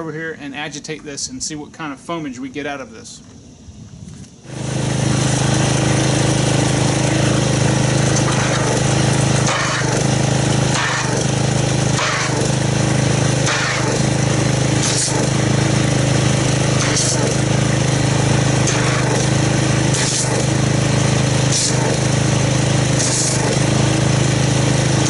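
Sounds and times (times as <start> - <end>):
pressure washer hum: 4.4 - 25.0
water spray hissing into bucket: 4.5 - 25.0.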